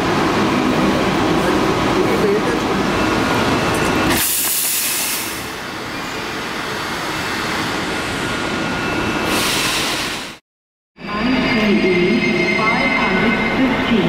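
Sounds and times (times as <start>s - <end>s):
low rumble of standing trains: 0.0s - 10.4s, 11.0s - 14.0s.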